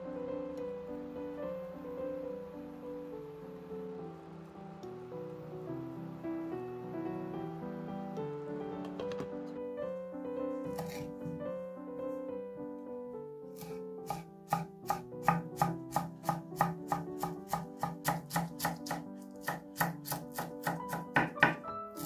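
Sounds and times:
soft background music: 0.0 - 22.0
knife chopping on wooden board: 10.7 - 11.4, 13.6 - 21.6.

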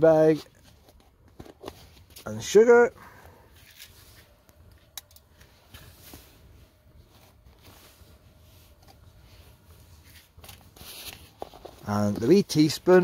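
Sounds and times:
quiet rustling: 0.0 - 13.0.

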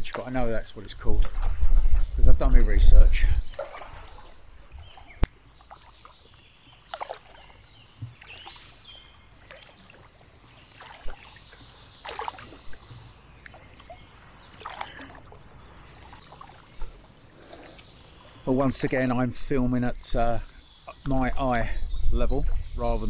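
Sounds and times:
water and wind background: 0.0 - 23.0
paddle splashes and dripping: 3.5 - 18.6.

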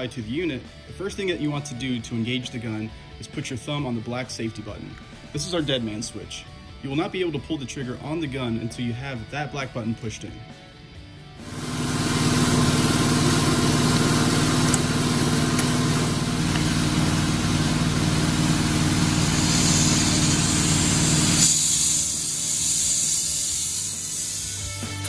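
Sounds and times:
compressed air hissing: 15.9 - 25.0.

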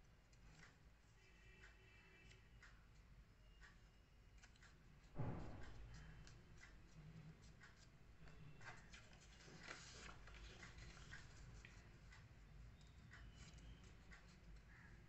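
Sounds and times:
paper rustling and crinkling: 8.6 - 11.8.

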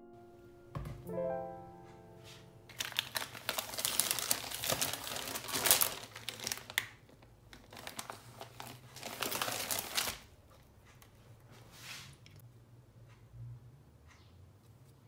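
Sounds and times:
plastic packaging crinkling: 2.7 - 10.3.

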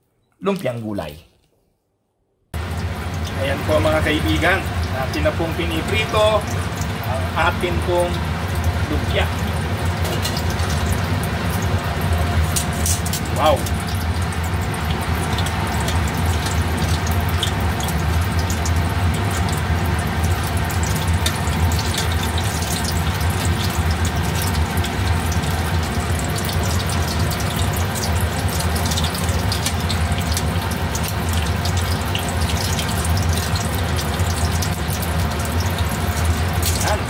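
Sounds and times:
deep-frying sizzle and pops: 2.6 - 37.0.

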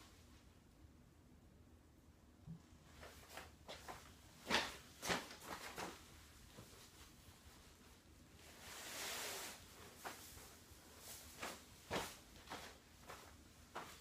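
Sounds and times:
plastic sheeting rustling: 3.8 - 14.0.

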